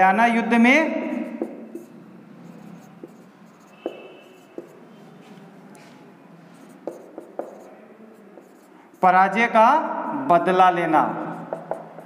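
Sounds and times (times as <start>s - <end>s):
marker scratching on whiteboard: 0.7s - 9.2s, 11.1s - 12.0s
marker squeak: 1.4s - 5.0s
marker tip tapping: 3.0s - 4.8s, 6.8s - 7.7s, 11.5s - 12.0s.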